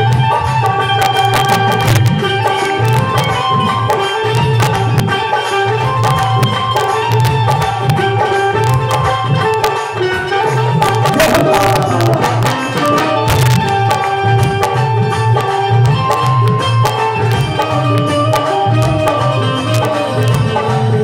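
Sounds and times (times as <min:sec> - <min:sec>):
melody of long held notes: 0:00.0 - 0:21.0
tabla drumming: 0:00.0 - 0:21.0.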